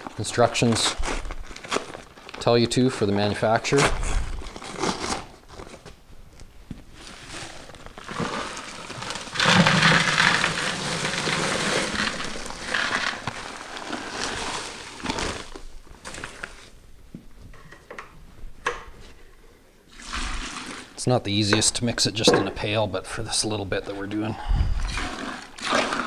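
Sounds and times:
paper bag crinkling: 0.0s - 5.9s, 6.8s - 16.8s
dry mix pouring into pail: 7.0s - 16.6s, 19.9s - 21.2s, 24.8s - 26.0s.

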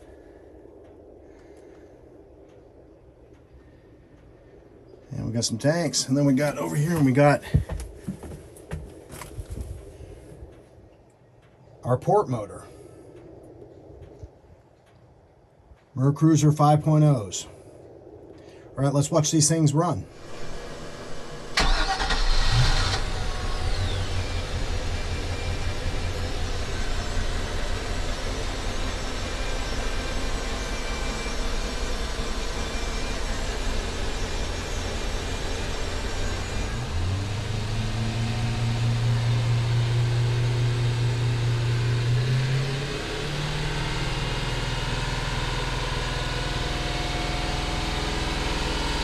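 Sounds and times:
deeper engine hum: 0.0s - 15.1s, 16.3s - 49.0s
boat engine starting and idling: 20.1s - 49.0s.

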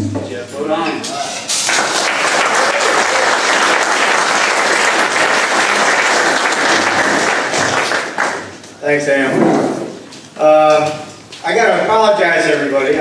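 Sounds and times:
audience applause: 1.6s - 8.7s.

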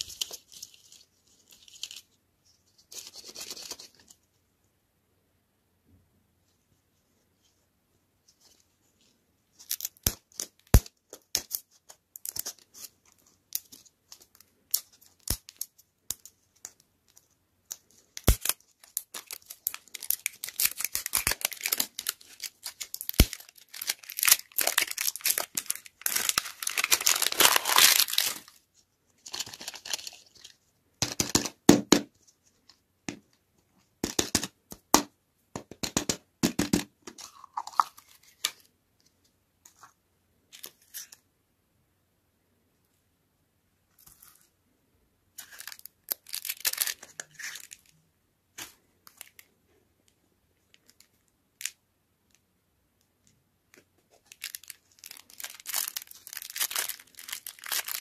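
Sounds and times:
plastic wrapper crinkling and tearing: 0.0s - 2.1s, 9.5s - 28.6s, 29.2s - 30.6s, 37.1s - 38.7s, 45.4s - 48.0s, 48.6s - 49.5s, 50.7s - 51.8s, 53.7s - 58.0s.

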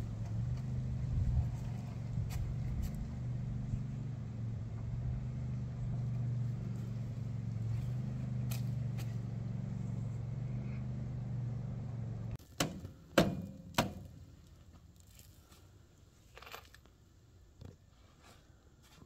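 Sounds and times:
tractor diesel engine idling: 0.0s - 12.4s
sharp knocks: 12.6s - 14.1s.

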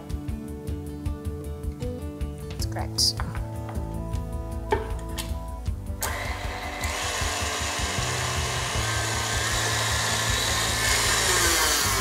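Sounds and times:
stand mixer whirring: 6.0s - 11.3s.

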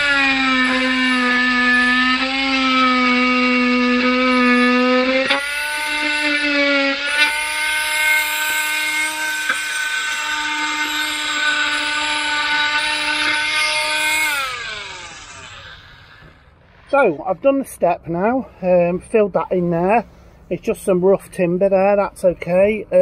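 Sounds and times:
power saw cutting wood: 0.0s - 17.3s.

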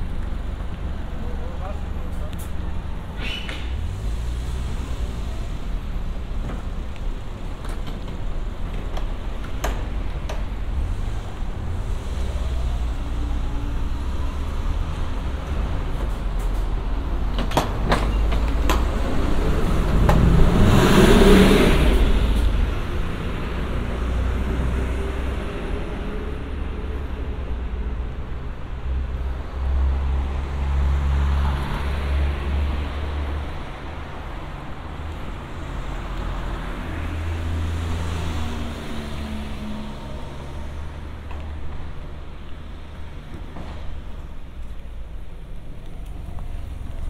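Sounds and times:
road traffic rumbling: 0.0s - 47.0s
vehicle driving past close by: 18.8s - 27.2s.

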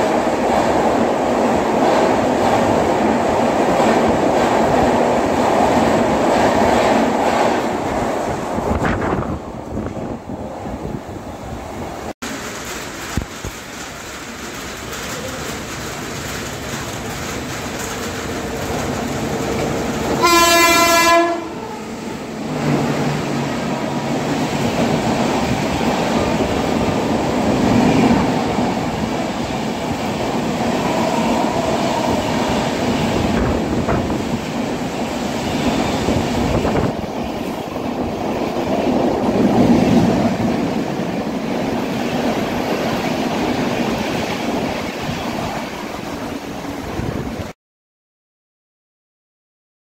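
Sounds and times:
train rumbling and clacking past: 0.0s - 47.6s
locomotive horn blast: 20.2s - 21.8s.

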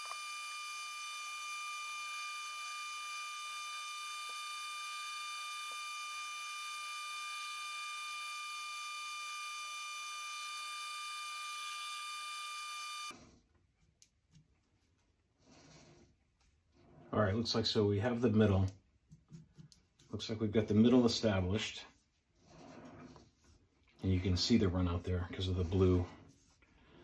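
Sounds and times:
metal lathe whine: 0.0s - 13.2s.

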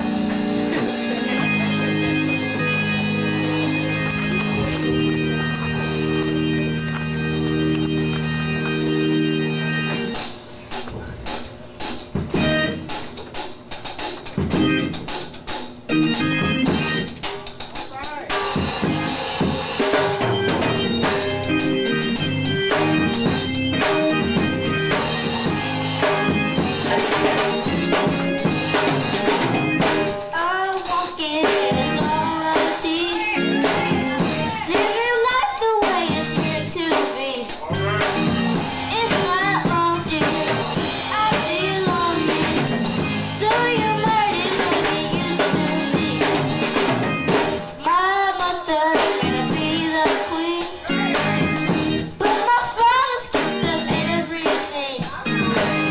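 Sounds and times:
drum kit: 0.0s - 55.9s
gospel band playing: 0.0s - 55.9s
girl singing into a microphone: 30.3s - 37.7s, 38.8s - 46.6s, 47.8s - 51.6s, 52.2s - 55.4s.

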